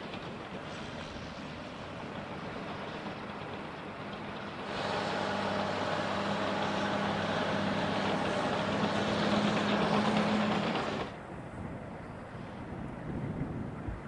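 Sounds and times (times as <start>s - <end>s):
bulldozer diesel engine under load: 0.0s - 11.6s.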